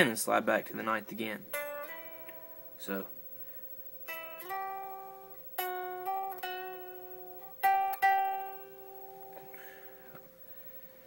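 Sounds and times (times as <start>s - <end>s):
unplugged electric guitar notes: 1.4s - 3.1s, 4.0s - 10.3s.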